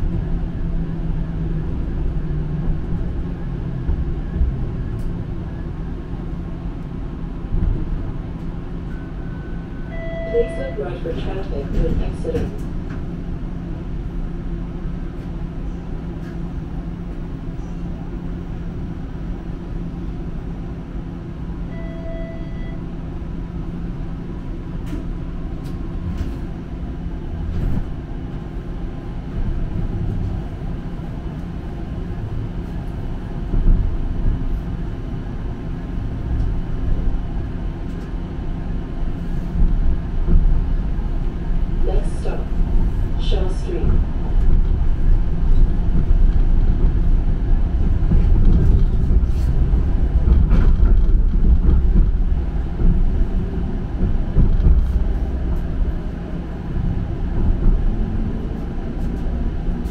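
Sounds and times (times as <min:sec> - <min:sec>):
streetcar rumble and motor hum: 0:00.0 - 0:59.9
short tone: 0:08.9 - 0:10.8, 0:21.7 - 0:22.9.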